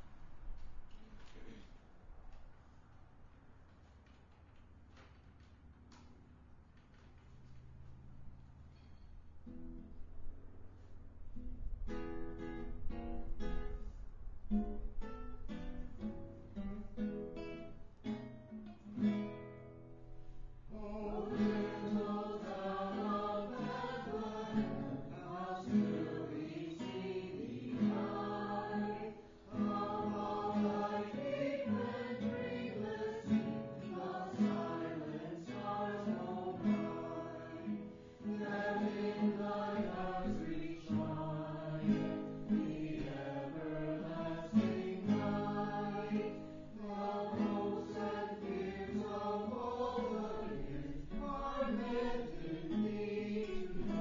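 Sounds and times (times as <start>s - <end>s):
acoustic guitar strumming: 14.5s - 54.0s
group singing a carol: 20.7s - 54.0s.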